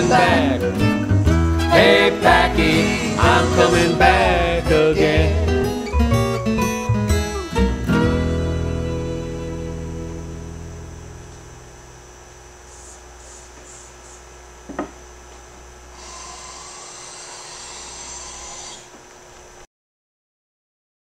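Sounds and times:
guitar song: 0.0s - 11.9s
plane shaving wood: 15.9s - 19.0s.

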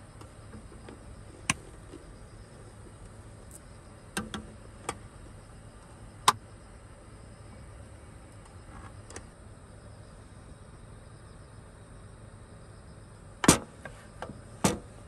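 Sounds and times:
insects chirring: 0.0s - 15.0s
sharp clicks and knocks: 4.2s - 5.0s.

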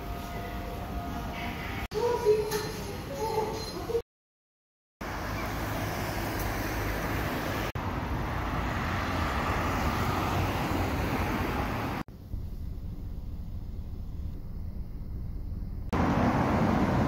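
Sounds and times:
city street traffic rumble: 0.0s - 4.0s, 5.0s - 17.0s
hum inside a car: 12.1s - 16.1s.

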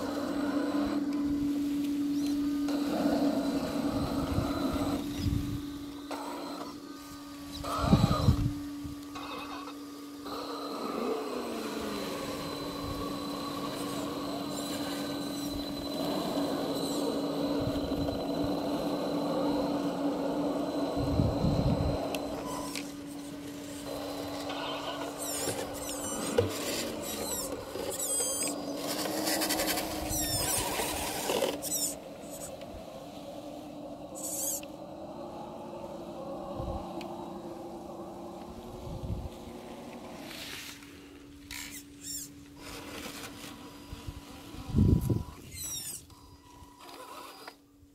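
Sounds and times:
electric motor and gearbox whining: 0.0s - 47.9s
fluttering high squeaks: 9.1s - 10.0s, 11.6s - 32.9s, 34.0s - 35.0s, 38.8s - 47.6s.

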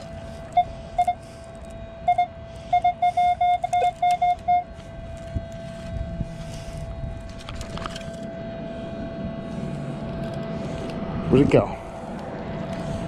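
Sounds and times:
metal detector beeping: 0.0s - 8.3s.

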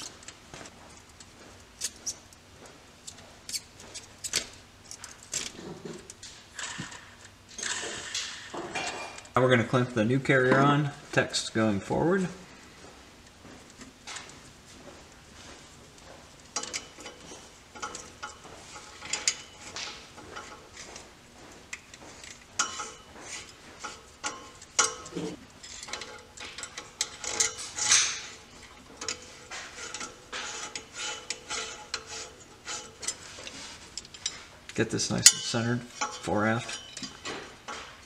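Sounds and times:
light metal clicks and clinks: 33.9s - 37.9s.

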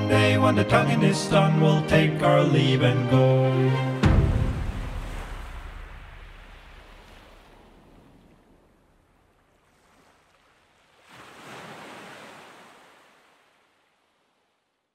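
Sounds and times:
soft ocean surf wash: 3.8s - 14.8s
wave rushing in: 4.0s - 8.4s.

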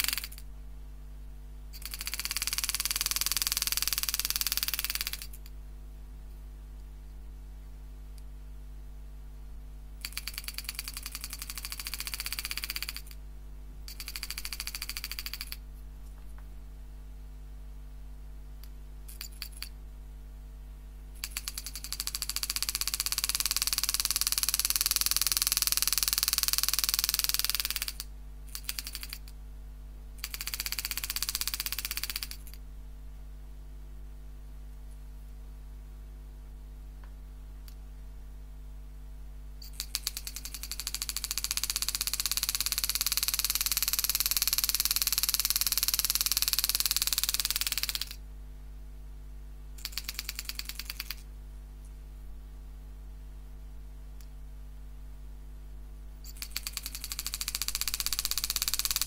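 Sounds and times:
engraving machine rapid strikes: 0.0s - 0.4s, 1.8s - 5.4s, 10.0s - 13.2s, 13.9s - 15.6s, 21.2s - 29.3s, 30.2s - 32.6s, 39.6s - 48.2s, 49.8s - 51.2s, 56.2s - 59.0s
steady low hum: 0.0s - 59.0s.

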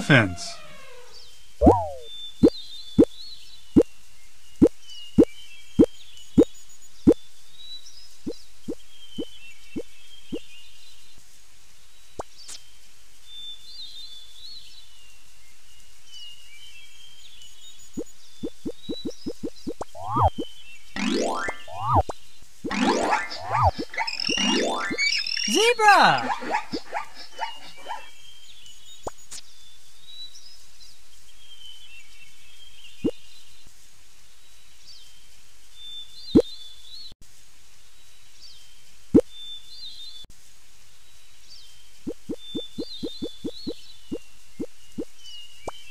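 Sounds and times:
birds chirping: 0.0s - 3.9s, 17.9s - 28.3s, 42.0s - 45.9s
click with upward chirp: 1.6s - 2.1s, 18.4s - 20.4s, 21.0s - 25.2s
steady hiss: 37.2s - 45.9s.

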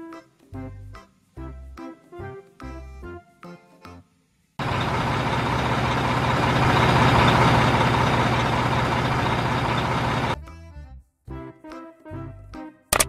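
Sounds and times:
diesel coach engine running: 4.6s - 10.4s.

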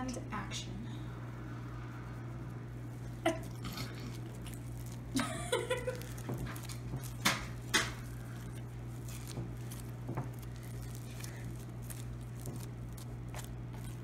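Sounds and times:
steady low hum: 0.0s - 14.0s
slime squishing: 1.8s - 14.0s.

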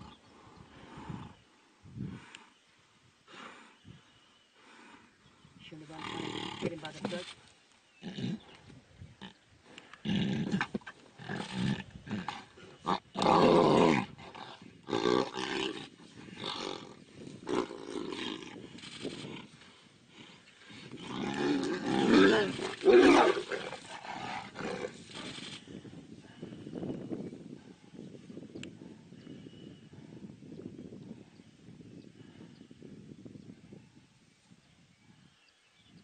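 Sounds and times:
tigers growling and roaring: 9.3s - 25.6s.

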